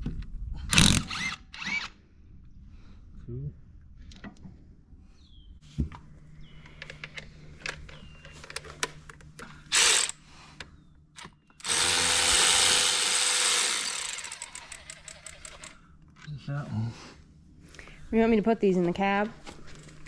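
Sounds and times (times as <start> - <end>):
impact wrench bursts: 9.7 - 10.2, 11.6 - 15.8.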